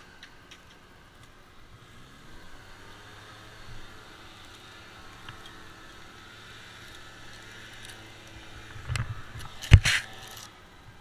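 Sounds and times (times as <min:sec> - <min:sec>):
gear knocking against tree trunk: 0:08.6 - 0:10.5.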